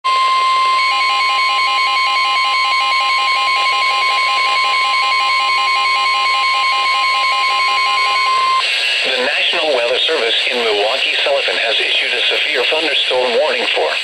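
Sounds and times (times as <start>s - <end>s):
rapid alarm beeping: 0.1s - 9.8s, 13.1s - 13.6s
steady high alarm tone: 0.1s - 10.8s, 13.1s - 13.6s.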